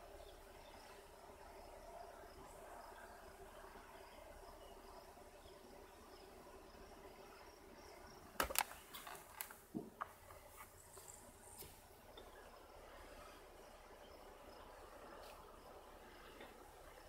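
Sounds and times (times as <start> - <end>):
crickets chirring: 0.0 - 17.0
sharp clicks and knocks: 8.4 - 10.4.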